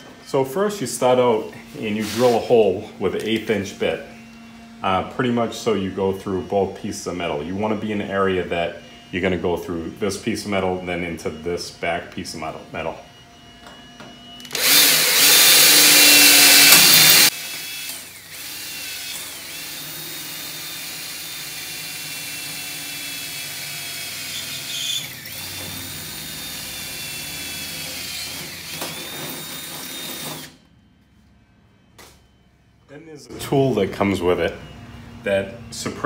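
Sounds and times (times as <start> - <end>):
cordless drill drilling sheet metal: 14.4 - 30.6.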